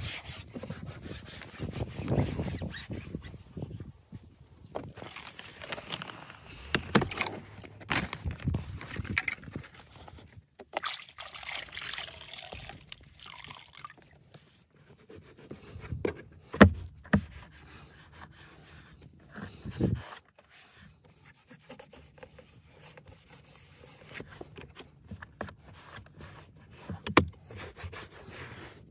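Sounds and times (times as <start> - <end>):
water splashing and trickling: 10.6 - 14.3.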